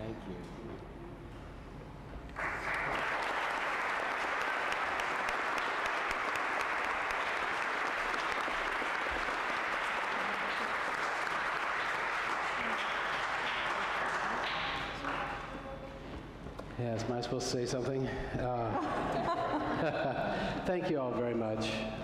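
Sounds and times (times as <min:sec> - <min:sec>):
congregation applauding: 0:02.3 - 0:15.5.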